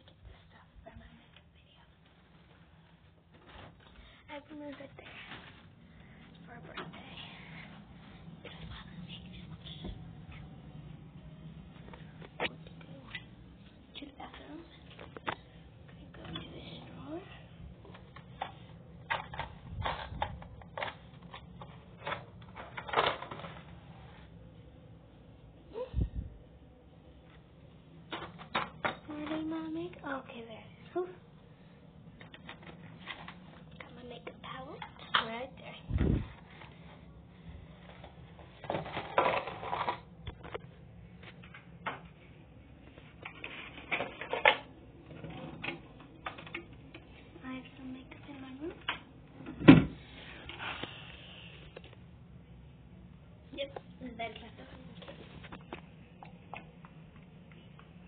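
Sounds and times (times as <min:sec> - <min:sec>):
makeup items clicking and rustling: 0:17.8 - 0:23.8, 0:32.2 - 0:35.4.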